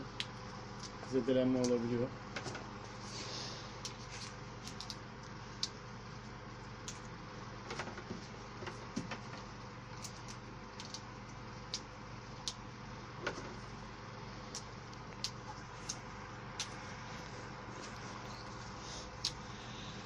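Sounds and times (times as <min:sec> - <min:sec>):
steady low hum: 0:00.0 - 0:20.0
rose stems clicking and snapping: 0:03.8 - 0:05.8, 0:06.8 - 0:07.1, 0:10.0 - 0:12.6, 0:14.5 - 0:16.8, 0:19.2 - 0:19.4.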